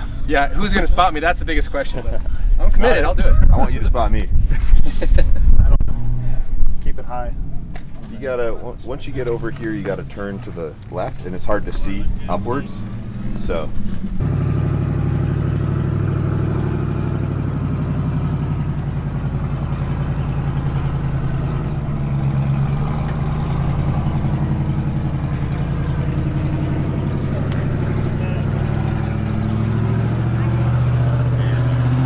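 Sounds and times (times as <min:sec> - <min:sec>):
buggy engine running under load: 0:08.6 - 0:32.0.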